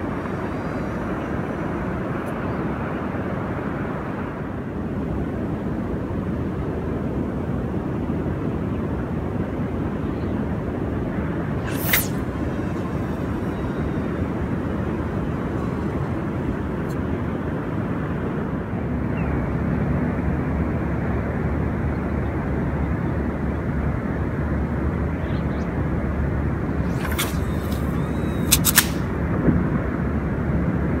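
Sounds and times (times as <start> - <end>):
wind buffeting microphone: 0.0 - 31.0
sharp clicks: 26.8 - 29.1.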